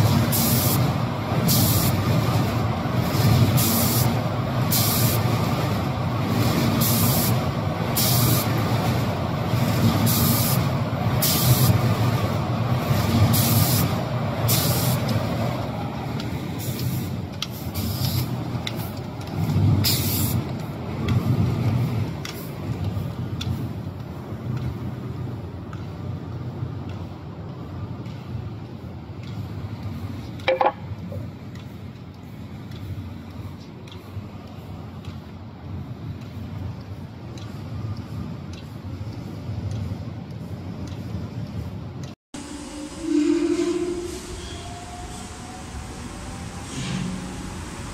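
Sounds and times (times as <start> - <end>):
spray gun hissing: 0.1 - 0.9, 1.5 - 2.0, 3.6 - 5.2, 6.8 - 7.4, 8.0 - 8.6, 10.0 - 12.1, 12.8 - 15.1, 16.6 - 18.9, 19.8 - 20.4
machine humming: 42.4 - 47.9.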